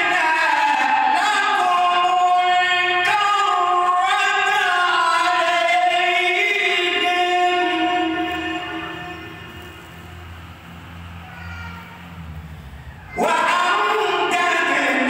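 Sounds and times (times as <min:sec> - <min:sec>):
man chanting melodically: 0:00.0 - 0:10.1, 0:13.1 - 0:15.0.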